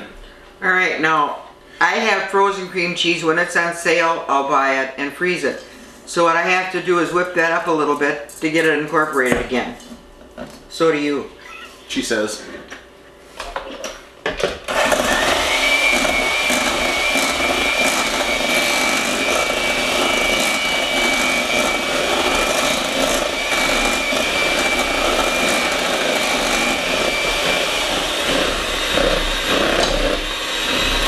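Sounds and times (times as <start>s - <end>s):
electric hand mixers whirring: 14.4s - 31.0s.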